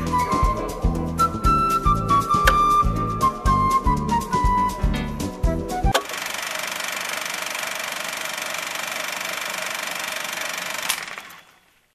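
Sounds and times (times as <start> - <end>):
flute-like music: 0.0 - 6.0.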